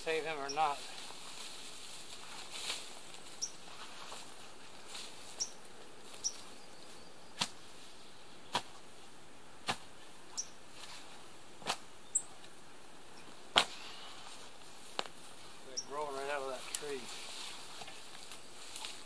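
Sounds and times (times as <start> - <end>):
shovel blade striking ground: 8.5 - 8.8, 9.6 - 9.9.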